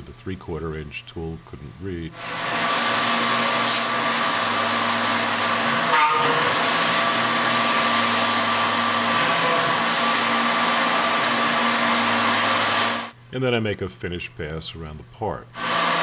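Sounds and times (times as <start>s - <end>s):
milling machine whine: 2.2s - 13.1s.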